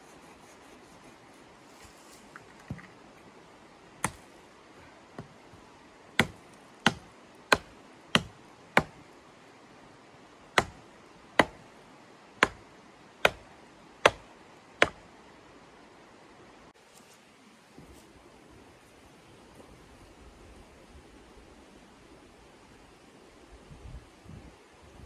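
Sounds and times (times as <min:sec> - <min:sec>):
hatchet chopping wood: 0:04.0 - 0:04.3, 0:06.2 - 0:09.0, 0:10.6 - 0:11.7, 0:12.4 - 0:15.0.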